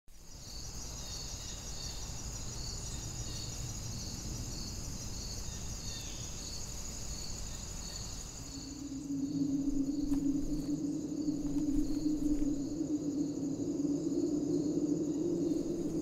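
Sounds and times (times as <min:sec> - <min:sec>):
insects chirping: 0:00.2 - 0:16.0
low background rumble: 0:08.6 - 0:16.0.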